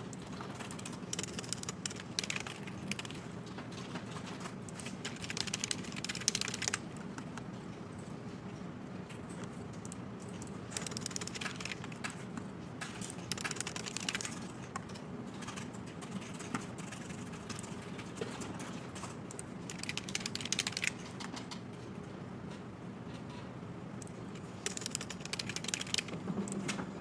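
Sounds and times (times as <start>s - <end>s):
keyboard typing: 0.0s - 7.4s, 9.8s - 12.2s, 12.8s - 21.6s, 24.0s - 26.8s
steady low hum: 0.0s - 27.0s.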